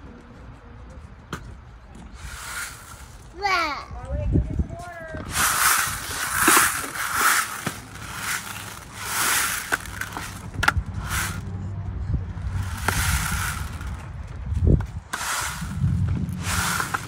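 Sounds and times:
beads rattling in dome: 5.2 - 11.4, 12.5 - 14.2.

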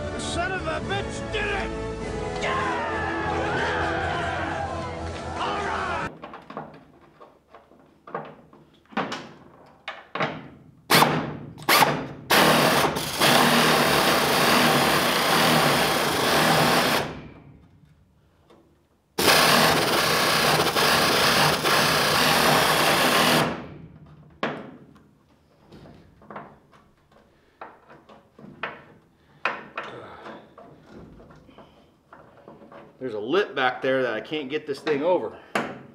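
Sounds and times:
pneumatic air ratchet: 10.9 - 17.2, 19.2 - 23.6.

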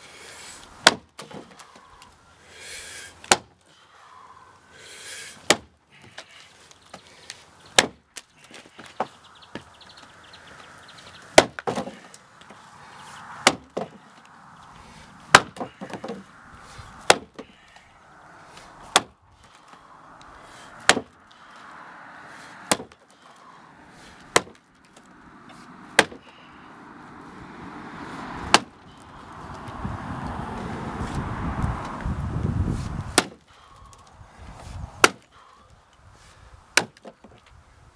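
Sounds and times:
axe chopping log: 0.8 - 1.6, 3.2 - 3.6, 5.4 - 5.8, 7.7 - 9.7, 11.3 - 12.5, 13.3 - 14.0, 15.3 - 16.3, 17.0 - 17.5, 18.6 - 19.6, 20.8 - 21.2, 22.6 - 23.0, 24.2 - 25.1, 25.9 - 26.3, 28.4 - 28.8, 33.0 - 33.4, 35.0 - 35.3, 36.7 - 37.3
low rushing noise: 12.2 - 15.4, 17.7 - 33.2.

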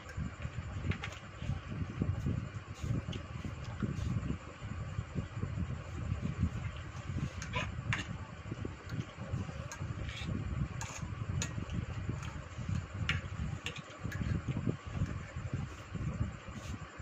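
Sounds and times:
steady low rumble: 0.0 - 17.0
fork scraping on ceramic plate: 10.0 - 11.1.

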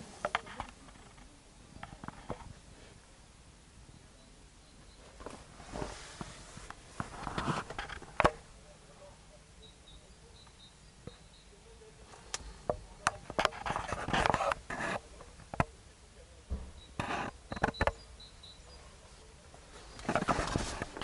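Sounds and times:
faint high chirps: 3.8 - 5.2, 8.6 - 13.0, 17.6 - 20.0
rustling: 4.8 - 9.2, 10.2 - 15.9, 16.5 - 21.0.

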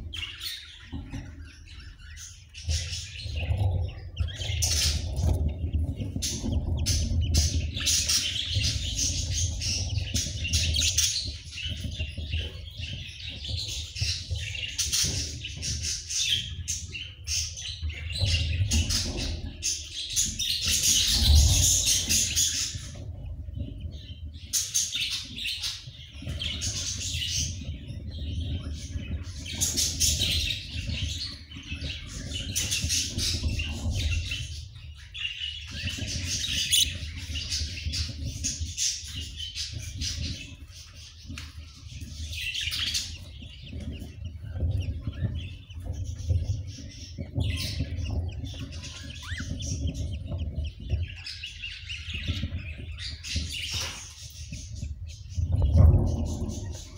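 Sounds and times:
budgerigars chirping: 0.0 - 56.9.

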